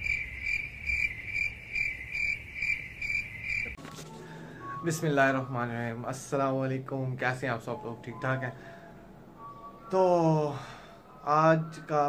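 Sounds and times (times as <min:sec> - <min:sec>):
insect chirping: 0:00.0 - 0:03.8.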